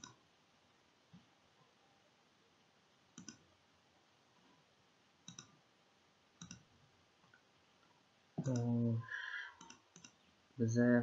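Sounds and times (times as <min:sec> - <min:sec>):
computer mouse clicks: 0:00.0 - 0:00.2, 0:03.2 - 0:03.5, 0:05.2 - 0:05.6, 0:06.4 - 0:06.7, 0:08.4 - 0:08.8, 0:09.6 - 0:10.3.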